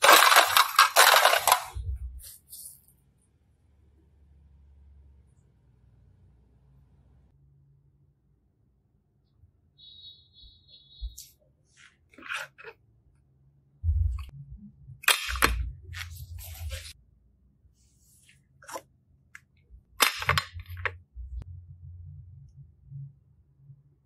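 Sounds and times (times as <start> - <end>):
plastic containers clicking: 0.0 - 1.8.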